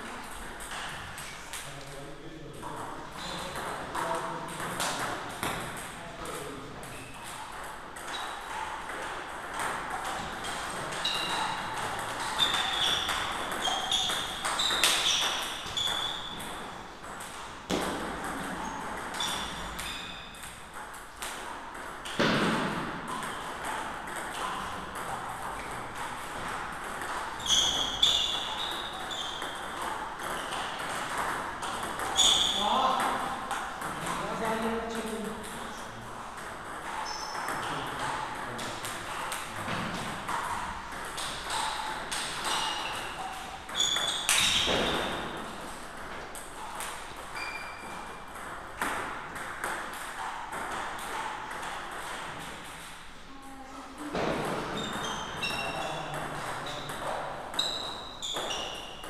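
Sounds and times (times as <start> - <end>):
table tennis balls clicking: 0.0 - 1.7, 2.6 - 53.1
people talking: 5.8 - 6.9, 32.5 - 33.3, 34.0 - 36.0, 53.3 - 57.2.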